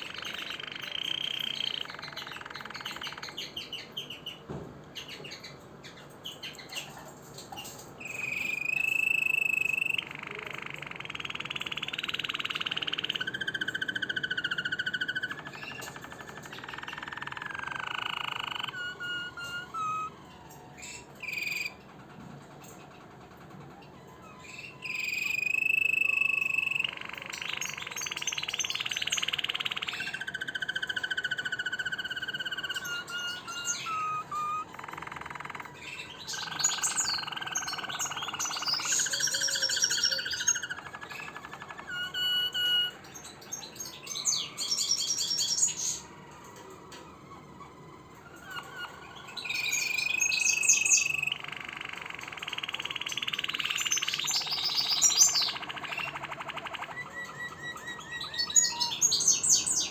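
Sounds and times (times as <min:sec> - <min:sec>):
canary singing: 0:00.0 - 0:59.9.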